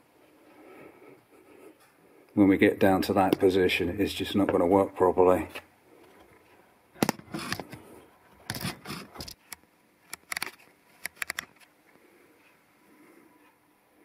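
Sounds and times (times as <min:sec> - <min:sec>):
sharp clicks: 0:08.5 - 0:11.7.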